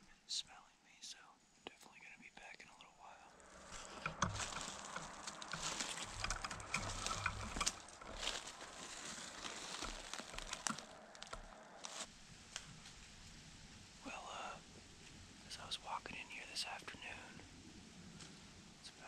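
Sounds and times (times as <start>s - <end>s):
footsteps crunching through dry leaves: 3.4s - 12.2s.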